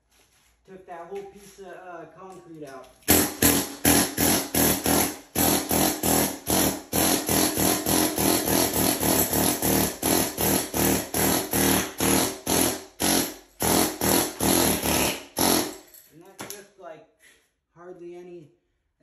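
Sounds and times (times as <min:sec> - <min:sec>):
pneumatic air hammer chipping concrete: 0:03.1 - 0:15.9.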